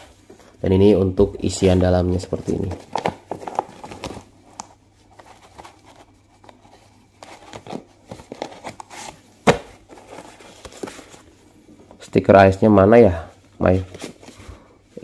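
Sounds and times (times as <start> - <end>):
paper rustling and shuffling: 1.4 - 11.4, 13.6 - 14.7.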